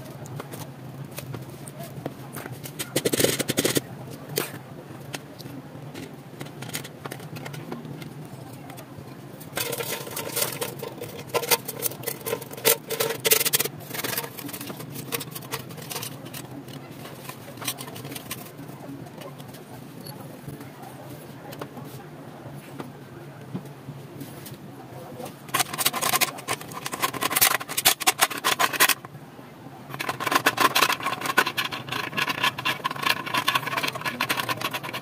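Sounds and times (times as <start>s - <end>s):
clicks taps and scraping from hand work: 9.6s - 18.6s, 25.5s - 29.1s, 29.9s - 35.0s.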